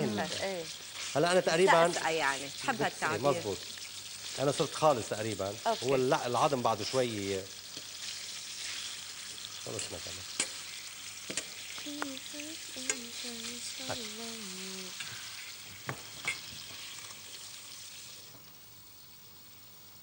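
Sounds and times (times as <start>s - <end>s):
meat sizzling in frying pan: 0.0s - 20.0s
metal utensils clicking on pan: 9.6s - 10.7s, 11.3s - 12.1s, 12.8s - 13.2s, 16.2s - 16.5s.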